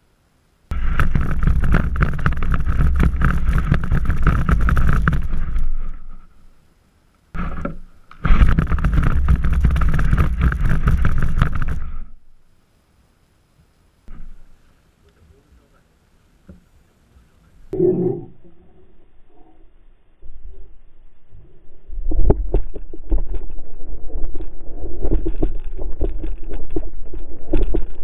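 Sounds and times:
sled scraping over dry grass: 0.7s - 6.5s, 7.4s - 12.2s.

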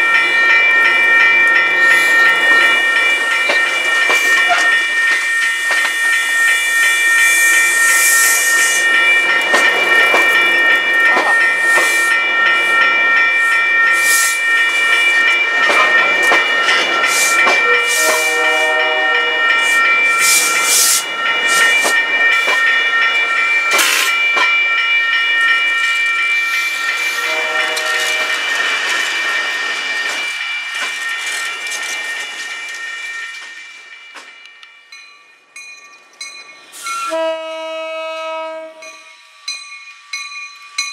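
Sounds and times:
train wheels squealing: 3.8s - 22.8s, 36.2s - 40.9s.

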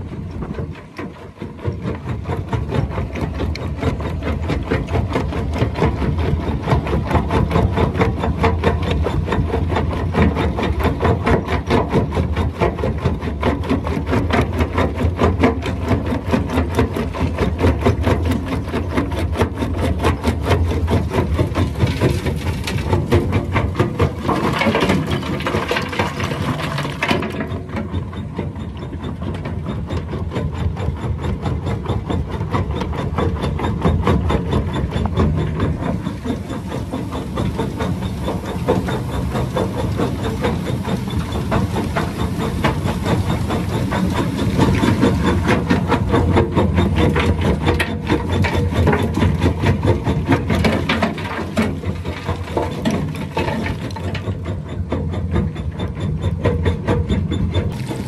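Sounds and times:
diesel tractor engine hum: 15.9s - 58.0s.

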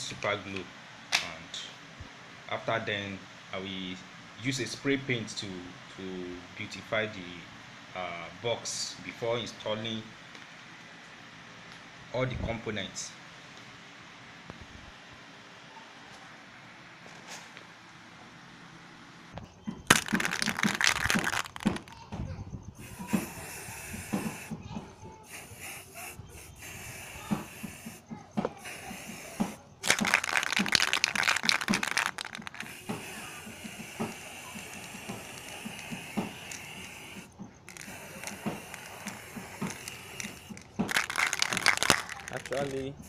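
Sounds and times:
handling clicks and knocks: 19.4s - 22.0s, 29.8s - 33.0s, 33.9s - 42.9s
spray paint can hissing: 19.9s - 21.9s, 22.8s - 42.9s.

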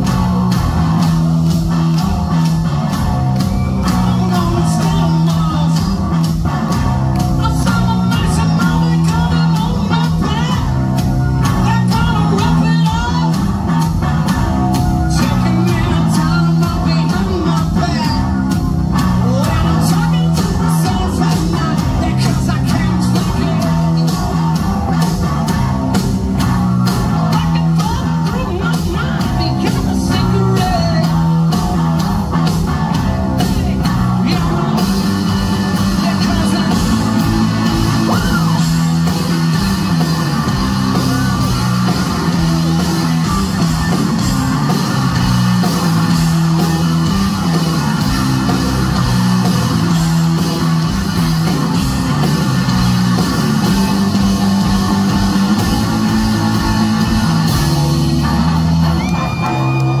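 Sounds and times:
bass guitar: 0.0s - 60.0s
low electric guitar riff: 0.0s - 60.0s
person singing: 3.8s - 6.1s, 7.3s - 13.4s, 14.7s - 24.6s, 27.0s - 32.1s, 33.0s - 39.1s.

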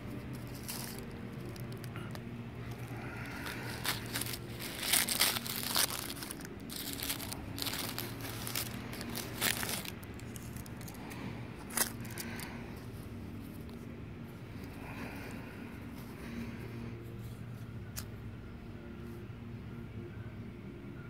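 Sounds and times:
paper wrapper crinkling and tearing: 0.0s - 12.6s.

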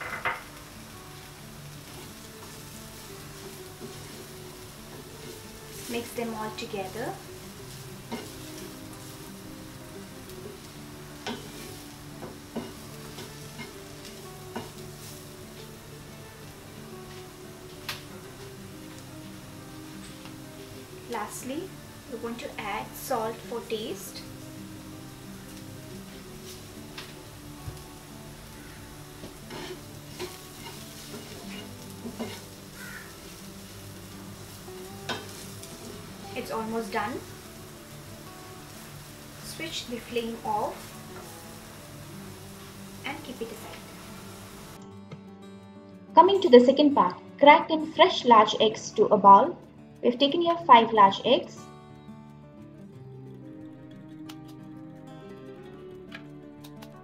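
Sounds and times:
vegetables sizzling in oil: 0.0s - 44.8s
spatula scraping pan: 7.7s - 9.1s, 10.5s - 15.2s, 29.2s - 33.4s.

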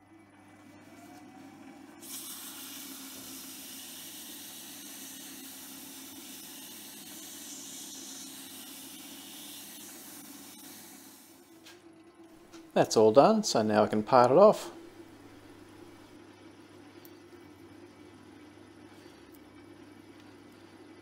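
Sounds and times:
abrasive hissing on metal: 2.0s - 11.4s
lathe humming: 2.5s - 11.5s.

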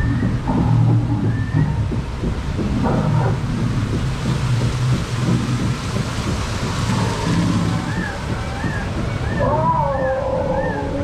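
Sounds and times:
heavy low rumble: 0.0s - 11.0s
rushing splashing water: 0.0s - 11.0s.

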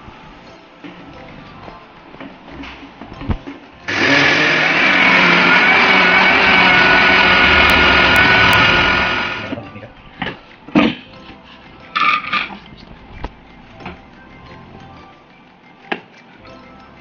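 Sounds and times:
mixer grinder motor whining: 3.9s - 9.6s.

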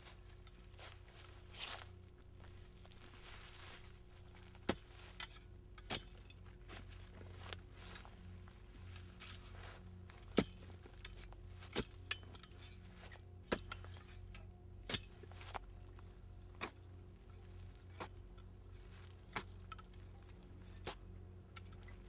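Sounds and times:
low hum: 0.0s - 22.0s
digging tool chopping earth: 10.2s - 10.7s, 11.7s - 12.5s, 13.4s - 14.2s, 14.8s - 15.6s, 16.5s - 16.8s, 19.1s - 19.6s, 20.8s - 21.1s.

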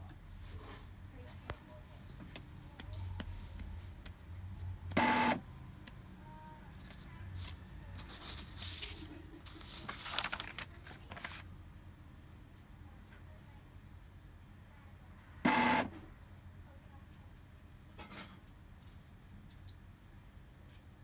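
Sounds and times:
printer whirring and clicking: 4.8s - 5.5s, 15.4s - 16.0s
loud printer motor burst: 5.0s - 5.4s, 15.5s - 16.0s.

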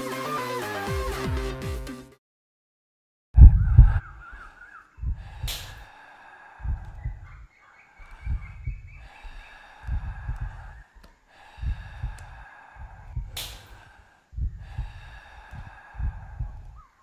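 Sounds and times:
heavy rhythmic breathing: 3.8s - 17.0s.

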